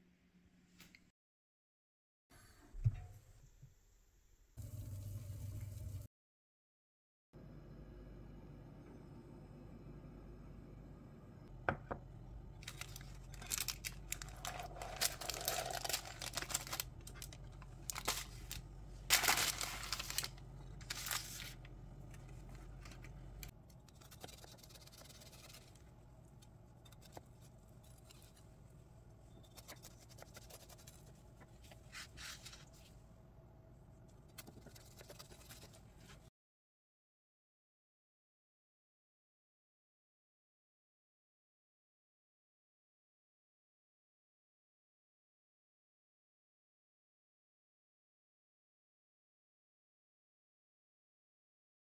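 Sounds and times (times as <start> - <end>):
parchment paper crinkling and tearing: 12.6 - 25.9, 29.5 - 32.9.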